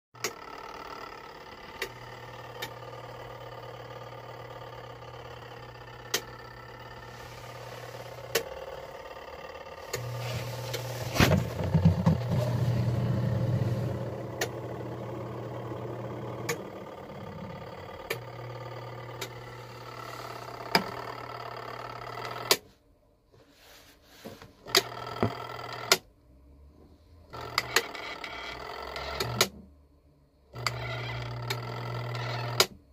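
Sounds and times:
washing machine motor humming: 0:00.2 - 0:22.6, 0:30.6 - 0:32.7.

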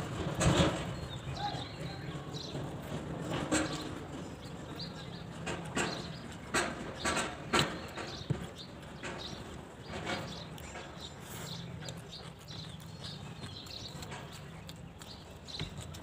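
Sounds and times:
chewing and mouth smacks: 0:05.6 - 0:16.0.

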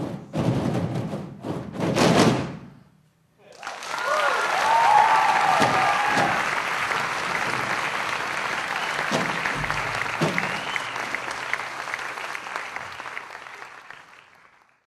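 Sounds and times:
audience applauding: 0:03.5 - 0:14.9.

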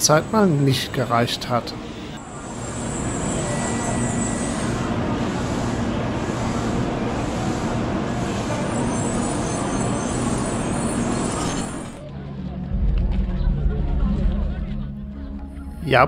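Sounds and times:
high-speed train running: 0:00.0 - 0:15.6.

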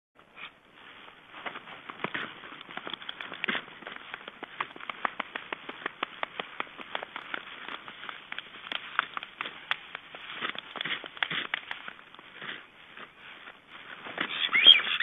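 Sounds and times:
wings flapping: 0:01.6 - 0:12.2, 0:13.8 - 0:15.0.

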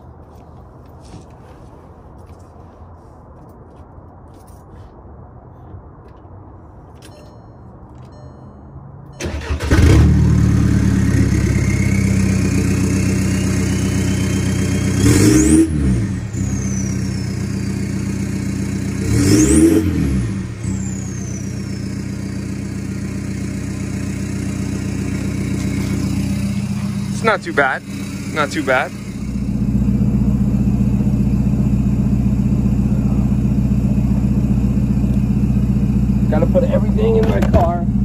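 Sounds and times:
diesel engine idling and revving: 0:07.9 - 0:38.0.

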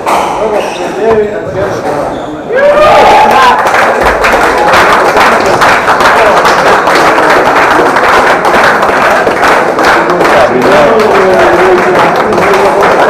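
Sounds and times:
crowd voices: 0:00.0 - 0:06.4
spectators applauding: 0:02.6 - 0:13.0.

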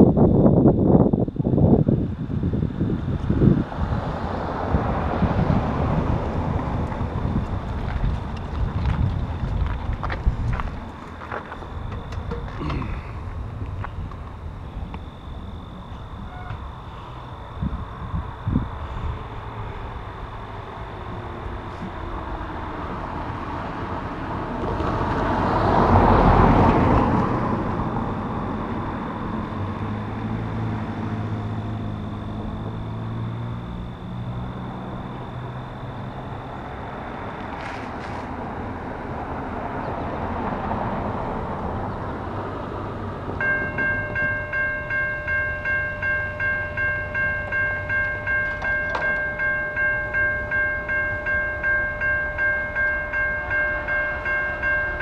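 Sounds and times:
car passing: 0:01.2 - 0:55.0
level-crossing bell ringing: 0:43.4 - 0:55.0.

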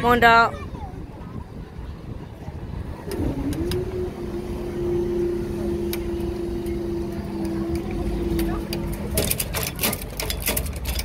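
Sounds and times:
barrier motor humming: 0:02.4 - 0:11.0.

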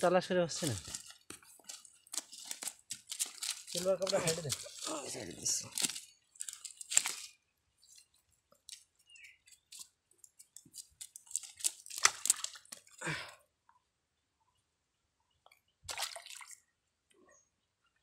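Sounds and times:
wet squishes and leaf crackles: 0:00.0 - 0:13.2.

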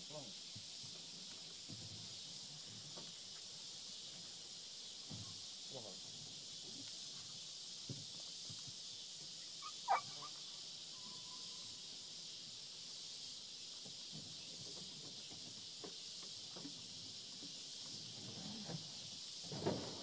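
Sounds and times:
high-pitched insect drone: 0:00.0 - 0:20.0
sharp animal call: 0:09.6 - 0:10.4.

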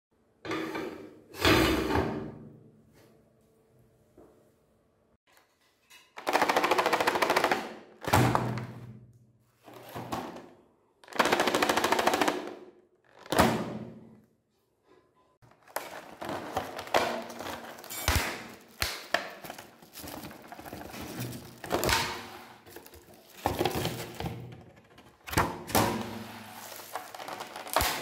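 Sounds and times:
plastic packaging crinkling: 0:15.4 - 0:24.3, 0:26.4 - 0:28.0
sharp plastic cracks: 0:15.6 - 0:24.4, 0:26.8 - 0:28.0.

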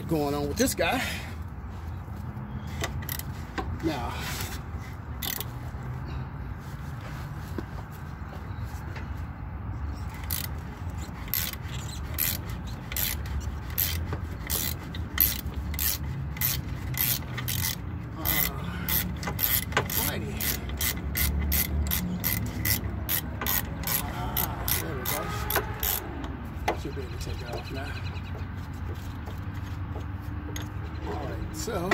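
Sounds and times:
ratcheting wrench clicking: 0:02.8 - 0:03.7, 0:05.2 - 0:05.6, 0:10.1 - 0:26.3.

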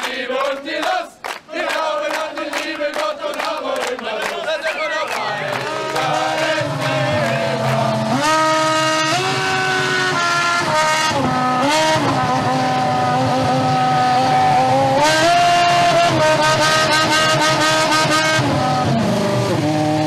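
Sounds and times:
racing car engine revving: 0:05.1 - 0:20.0.

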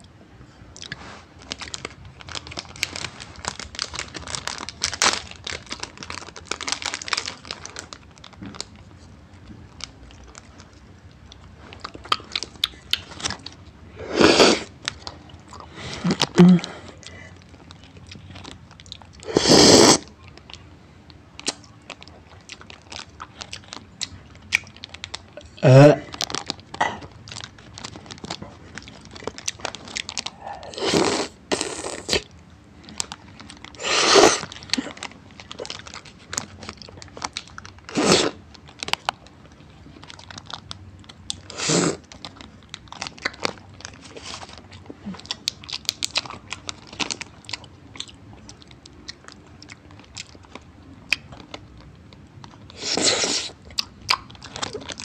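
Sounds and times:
crunching and chewing: 0:00.0 - 0:55.0
paper wrapper rustling: 0:01.1 - 0:09.0, 0:26.0 - 0:30.9, 0:32.8 - 0:37.9, 0:42.0 - 0:47.6, 0:54.3 - 0:55.0.

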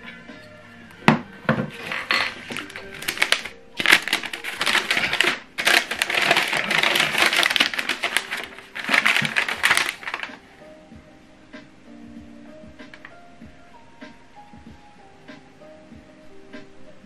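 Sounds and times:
paper leaflet rustling: 0:01.5 - 0:10.5.

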